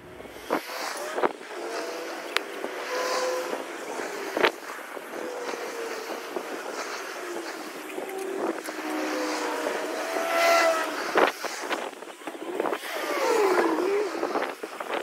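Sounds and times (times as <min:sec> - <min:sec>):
vehicle engine running: 0:00.1 - 0:14.2.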